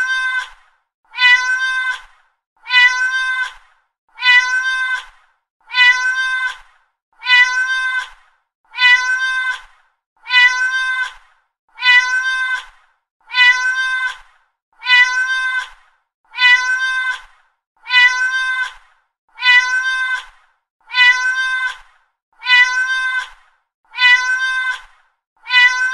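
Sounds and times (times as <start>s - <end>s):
cat meowing: 1.1s - 2.0s, 2.6s - 3.6s, 4.2s - 5.1s, 5.7s - 6.6s, 7.2s - 8.1s, 8.7s - 9.6s, 10.2s - 11.2s, 11.8s - 12.7s, 13.3s - 14.2s, 14.8s - 15.7s, 16.3s - 17.2s, 17.8s - 18.8s, 19.4s - 20.3s, 20.9s - 21.8s, 22.4s - 23.3s, 23.9s - 24.8s, 25.4s - 25.9s.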